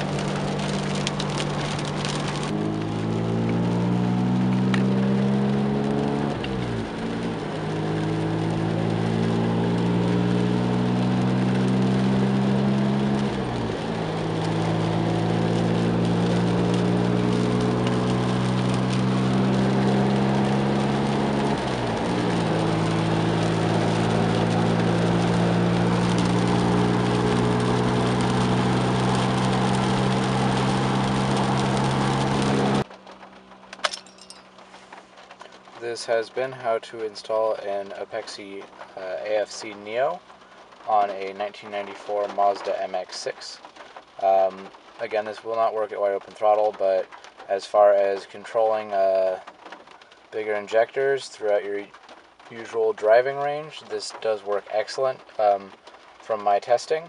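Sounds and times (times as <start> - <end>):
car engine running: 0.0 - 43.0
rain on car: 0.0 - 57.0.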